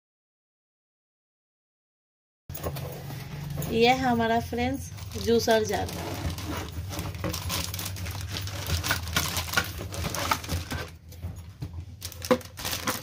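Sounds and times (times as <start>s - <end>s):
plastic bag rustling: 2.6s - 13.0s.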